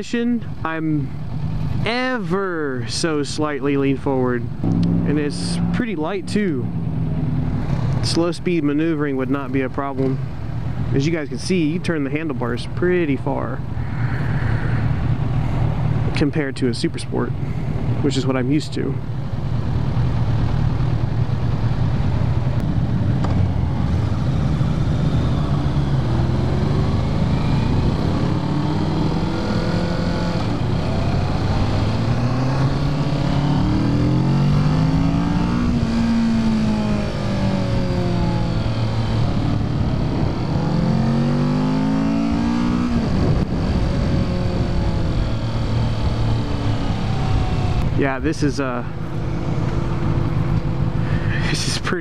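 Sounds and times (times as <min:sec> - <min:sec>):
low wind rumble: 0:00.0 - 0:52.0
motorcycle engine accelerating: 0:04.4 - 0:11.0, 0:19.0 - 0:51.7.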